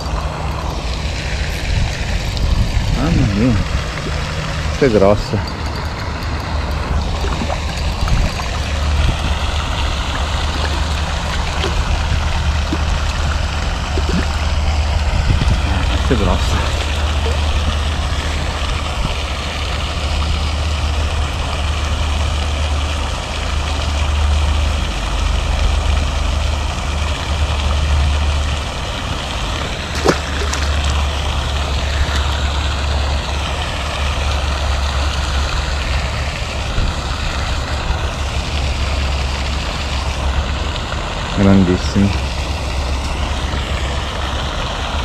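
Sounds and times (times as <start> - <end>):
wind buffeting microphone: 1.2 - 19.7
fish splashing into water: 6.2 - 20.1, 28.3 - 40.0.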